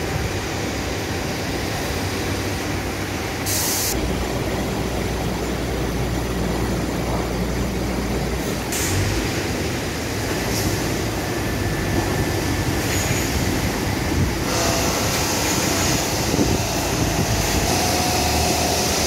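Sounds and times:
burst of hiss: 3.4s - 4.0s.

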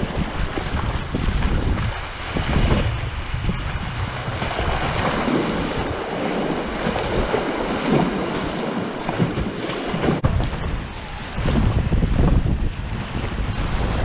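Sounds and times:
water splashing against kayak: 0.0s - 14.0s.

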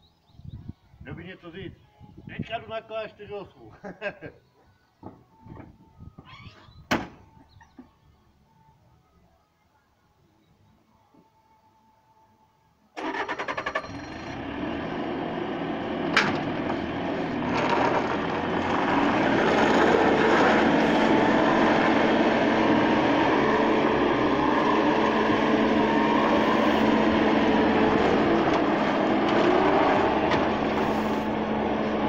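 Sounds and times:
loader engine starting and running: 13.0s - 32.0s.

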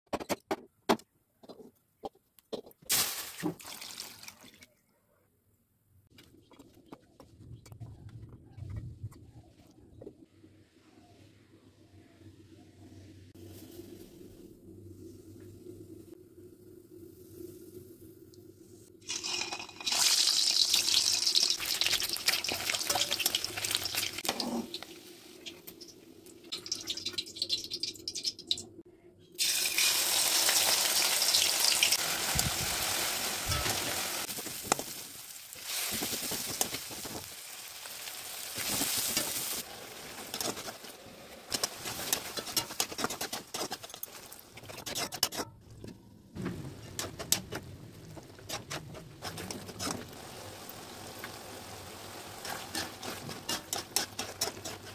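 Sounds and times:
hot oil sizzling in a pan: 19.0s - 28.6s, 29.4s - 44.4s, 49.2s - 54.9s
spatula stirring: 38.6s - 40.9s, 41.5s - 45.6s, 46.8s - 50.2s, 52.4s - 54.9s.

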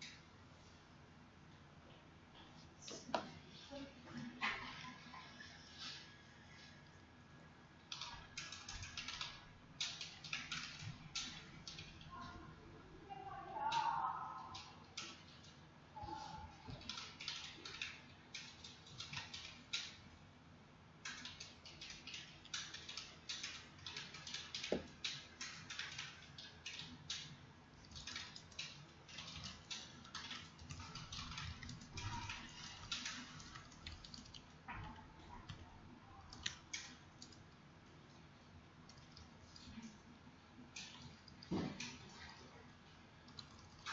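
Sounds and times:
keyboard typing: 7.9s - 12.2s, 13.7s - 15.6s, 16.2s - 20.1s, 21.0s - 37.6s, 38.8s - 39.9s, 43.2s - 43.9s.

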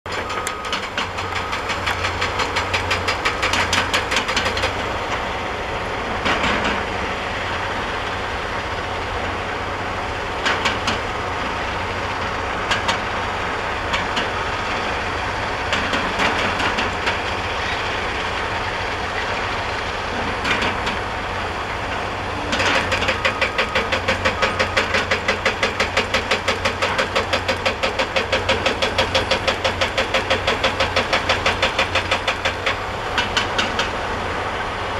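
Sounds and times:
hydraulic rock breaker hammering: 0.1s - 4.9s, 22.4s - 34.2s
diesel engine running: 0.1s - 34.9s.

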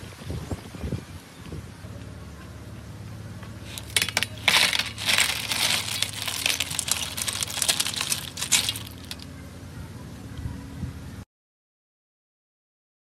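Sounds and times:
shells clattering on metal tray: 3.6s - 9.2s.

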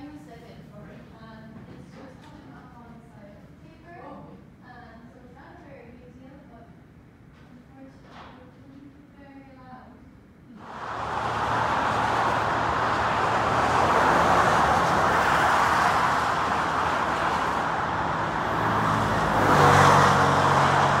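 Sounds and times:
highway traffic tyre rush: 10.6s - 21.0s
vehicle engine hum: 10.6s - 21.0s.

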